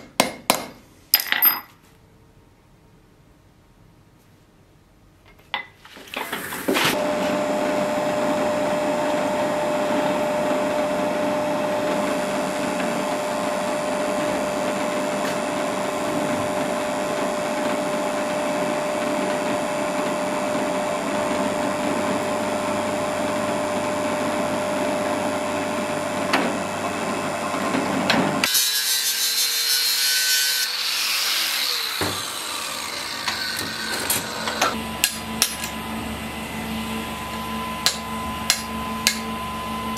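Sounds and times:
drill press cutting steel: 28.4s - 35.8s
falling machine whines: 30.7s - 39.9s.

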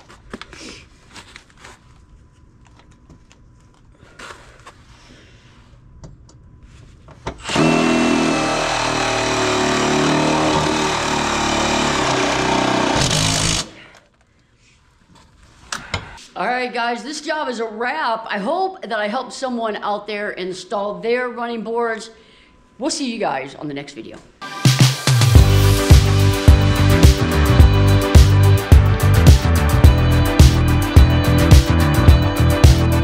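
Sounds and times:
power drill running: 7.4s - 13.8s.

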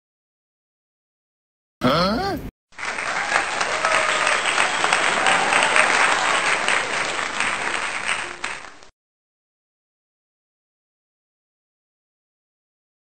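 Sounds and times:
crowd applauding: 2.7s - 8.9s.

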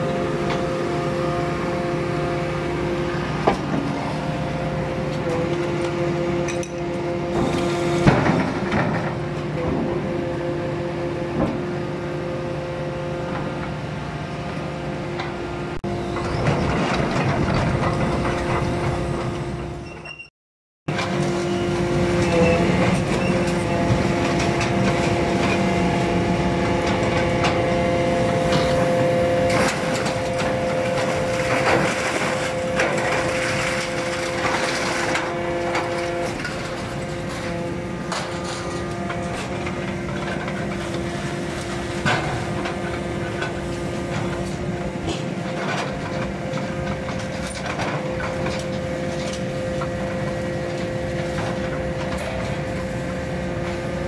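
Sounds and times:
excavator diesel engine: 0.0s - 20.2s, 20.9s - 54.0s
hydraulic power unit whine: 0.0s - 20.3s, 20.9s - 54.0s
scrap metal clanking: 28.5s - 46.3s.

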